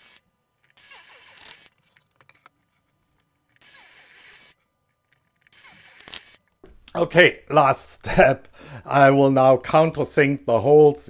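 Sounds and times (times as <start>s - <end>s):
drill drilling into wood: 0.0s - 1.7s, 3.6s - 4.6s, 5.5s - 6.4s.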